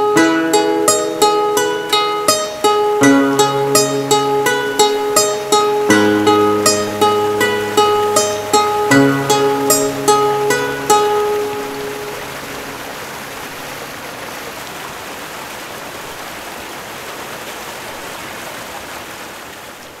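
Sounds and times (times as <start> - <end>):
plucked string notes: 0.0 - 13.7.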